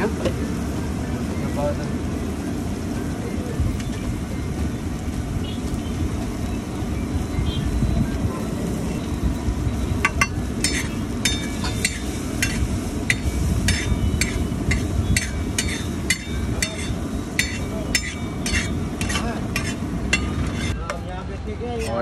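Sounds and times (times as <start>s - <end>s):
metal spatula scraping steel pan: 10.1s - 20.8s.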